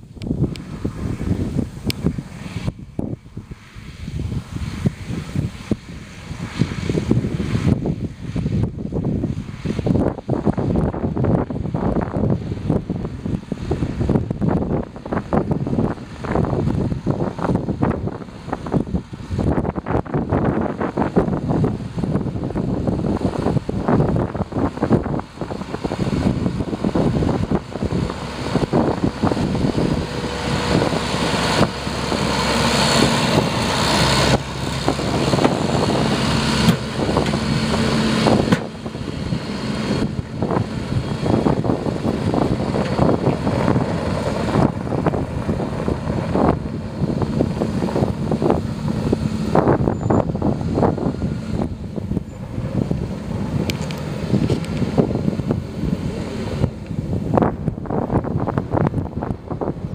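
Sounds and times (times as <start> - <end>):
tractor diesel engine running: 0.0 - 59.9
wind on microphone: 0.0 - 59.9
trailer knocking and rattling: 25.2 - 56.8.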